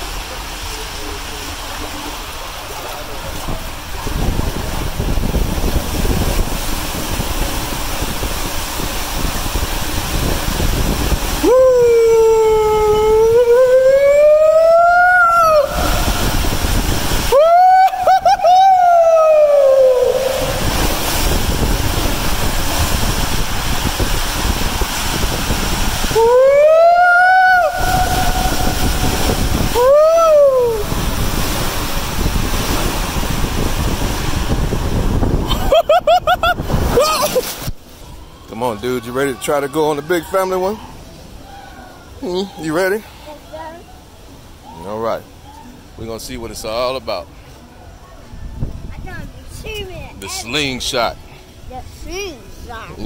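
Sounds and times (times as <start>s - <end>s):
water rushing in slide tube: 0.0s - 53.0s
person yelling: 11.4s - 16.2s, 17.3s - 20.7s, 26.1s - 31.0s, 36.9s - 37.4s.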